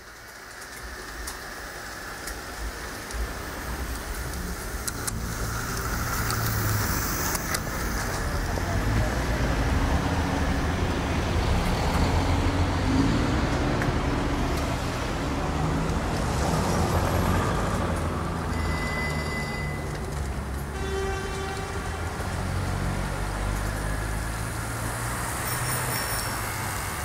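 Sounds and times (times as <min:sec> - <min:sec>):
city traffic rumble: 0:00.0 - 0:27.0
short high tone: 0:18.5 - 0:19.9
low chime-like tone: 0:18.5 - 0:20.0.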